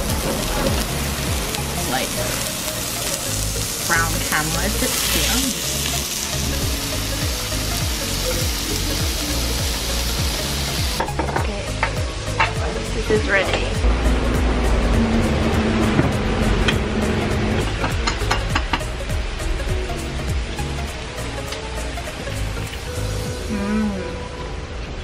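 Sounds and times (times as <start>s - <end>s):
meat sizzling on a grill: 0.0s - 13.5s, 18.1s - 23.6s
background music beat: 0.0s - 24.0s.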